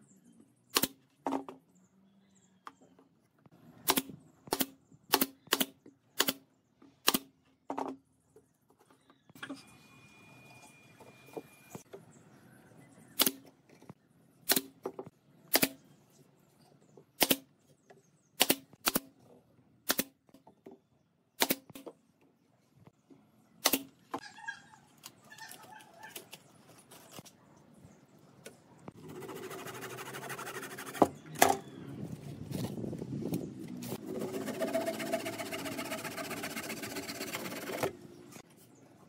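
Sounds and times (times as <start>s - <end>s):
nail gun shots: 0.7s - 1.0s, 3.8s - 6.4s, 7.0s - 7.3s, 13.2s - 13.5s, 14.5s - 14.8s, 15.5s - 15.8s, 17.2s - 17.5s, 18.4s - 19.1s, 19.8s - 20.2s, 21.4s - 21.9s, 23.6s - 23.9s.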